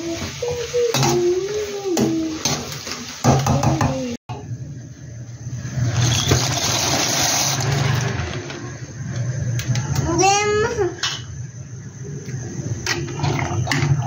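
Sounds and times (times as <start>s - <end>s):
vegetables and chicken sizzling in pan: 0.0s - 9.5s
water boiling hard in pot: 0.0s - 9.6s, 12.6s - 14.0s.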